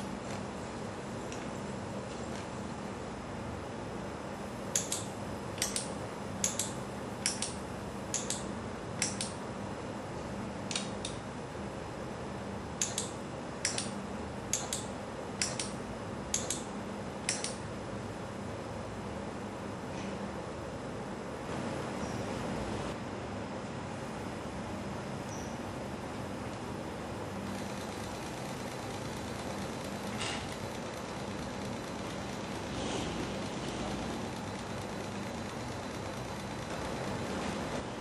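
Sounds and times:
steady low hum: 0:00.0 - 0:38.0
actuator double clicks: 0:04.7 - 0:09.4.

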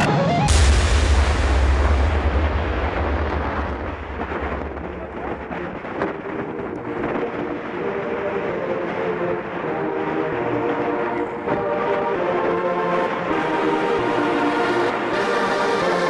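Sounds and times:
wind buffeting microphone: 0:01.3 - 0:12.7.

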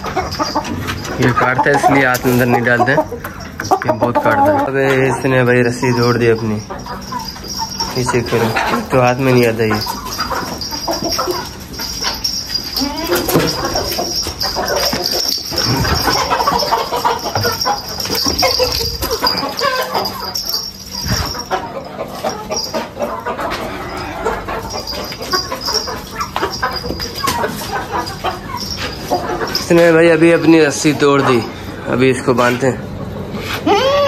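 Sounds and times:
chickens clucking: 0:00.0 - 0:34.0
high-pitched drone: 0:05.2 - 0:30.7.

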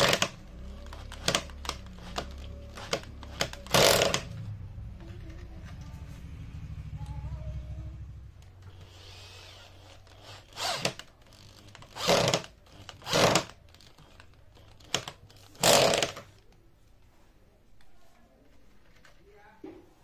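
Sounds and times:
cordless drill boring into wood: 0:00.0 - 0:04.3, 0:08.7 - 0:14.2, 0:14.8 - 0:16.2.

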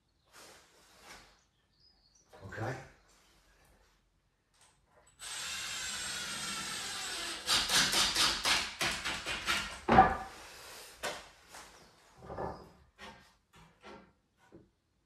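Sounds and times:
cordless drill motor whine: 0:05.2 - 0:07.4.

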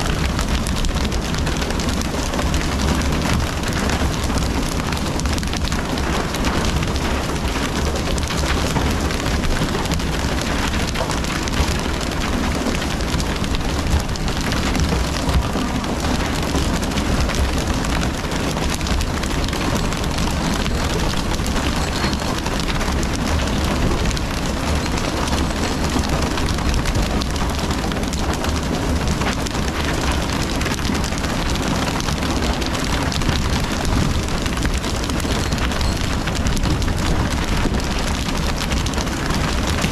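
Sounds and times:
boat rumble: 0:10.2 - 0:29.1
water rushing and splashing: 0:12.4 - 0:23.0.

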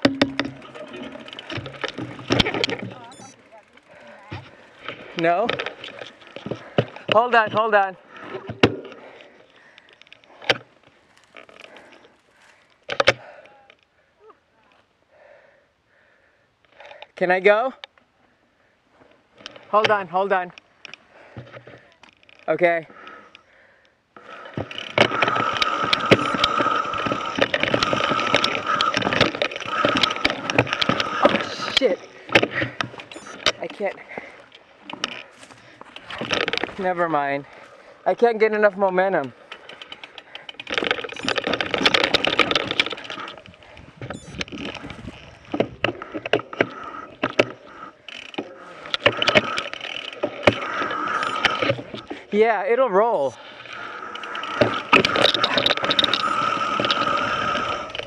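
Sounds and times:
bike rattling and knocking: 0:00.0 - 0:13.4, 0:24.2 - 0:52.3, 0:53.2 - 0:58.0
tyres crunching over rock: 0:24.2 - 0:37.8.

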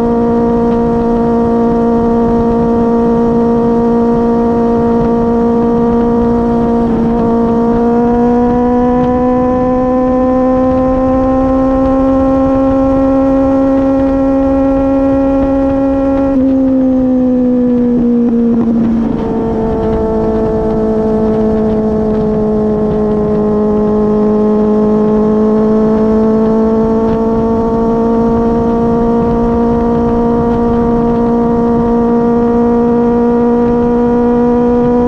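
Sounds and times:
motorcycle engine droning: 0:00.0 - 0:35.0
wind rush: 0:00.0 - 0:35.0.

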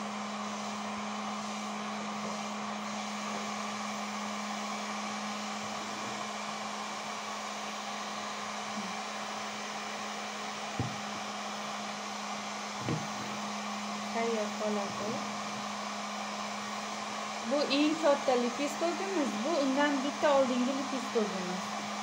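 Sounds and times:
heat gun blowing air: 0:00.0 - 0:22.0
soft knock: 0:10.7 - 0:11.1, 0:12.8 - 0:13.3.

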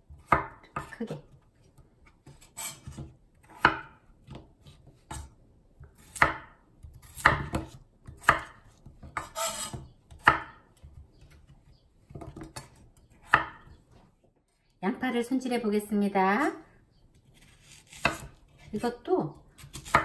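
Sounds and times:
knife chopping on wooden board: 0:05.9 - 0:11.0, 0:12.1 - 0:13.7, 0:17.4 - 0:18.4, 0:19.6 - 0:20.0.

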